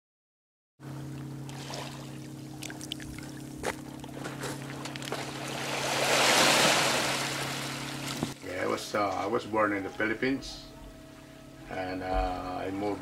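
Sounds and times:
steady low hum: 0.8s - 13.0s
small waves washing on shore: 4.6s - 8.4s.

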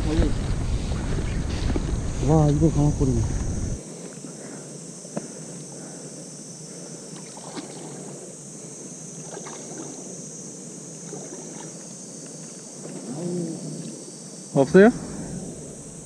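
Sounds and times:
person wading through water: 7.1s - 8.2s, 9.2s - 10.1s, 11.0s - 11.8s
small splashes and swishes: 7.2s - 8.2s, 9.2s - 10.1s, 11.0s - 13.2s.

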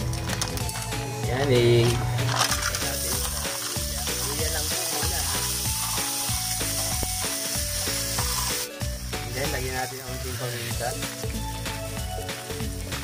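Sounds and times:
background music: 0.0s - 13.0s
mussel shells clattering: 2.2s - 3.8s
frying pan sizzling: 2.2s - 13.0s.

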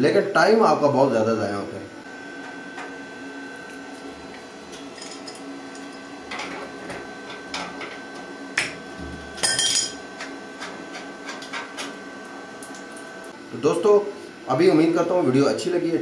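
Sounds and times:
steady hum: 0.0s - 16.0s
metal hoses clinking and rattling: 4.9s - 6.5s.

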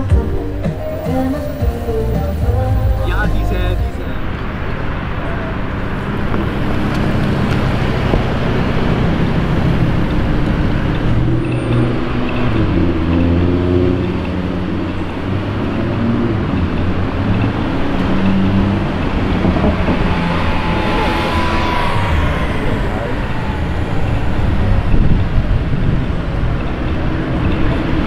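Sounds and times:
car engine and exhaust revving: 0.0s - 28.0s
street traffic: 0.0s - 28.0s.

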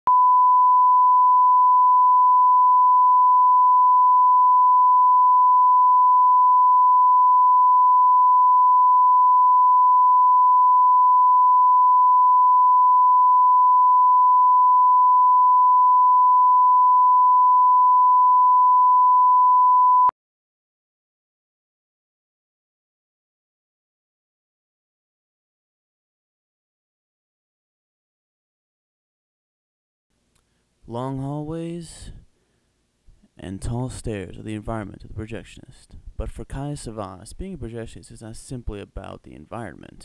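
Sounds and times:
sine-wave reference tone: 0.1s - 20.1s.

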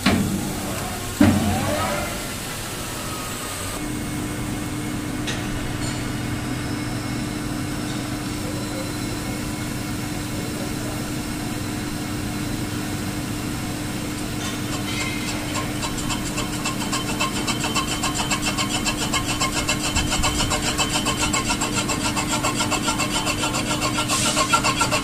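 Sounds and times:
lathe motor hum: 9.0s - 25.0s.

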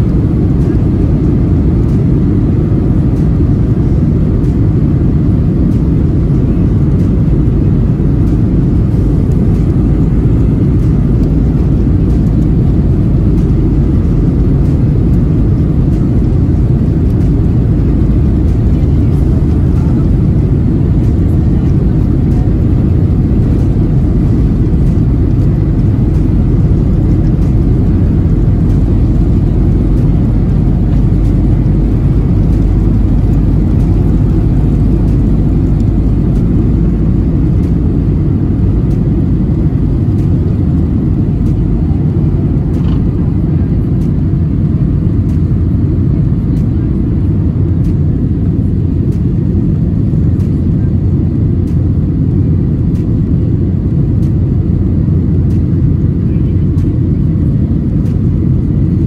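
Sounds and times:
jet engine rumble in cabin: 0.0s - 59.0s.

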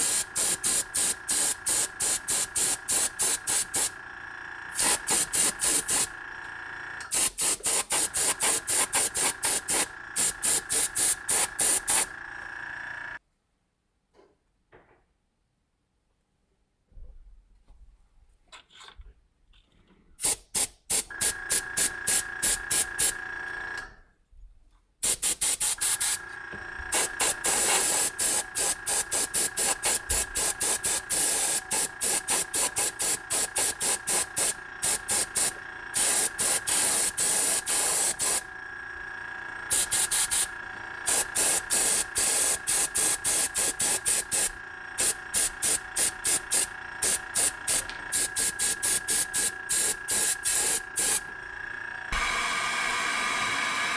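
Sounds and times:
airbrush spraying hissing bursts: 0.0s - 4.1s, 4.7s - 6.4s, 7.1s - 13.2s, 20.2s - 23.2s, 25.0s - 26.3s, 26.9s - 38.5s, 39.7s - 51.3s
steady high hum: 0.0s - 13.2s, 25.8s - 52.2s.

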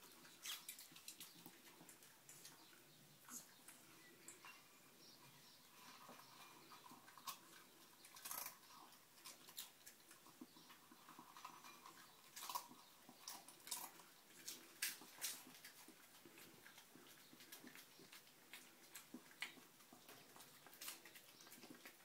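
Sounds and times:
dog crunching dry kibble: 6.6s - 22.0s.

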